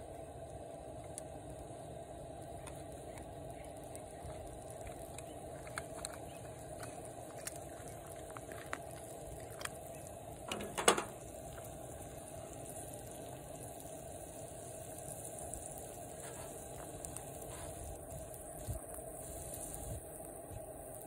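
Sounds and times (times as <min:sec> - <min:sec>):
camp stove burner: 0:00.0 - 0:21.0
small ticks: 0:02.6 - 0:10.0.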